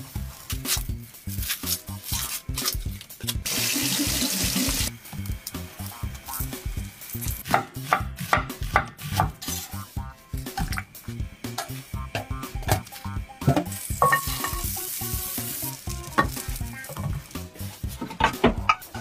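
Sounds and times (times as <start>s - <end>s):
kitchen tap running: 3.4s - 4.9s.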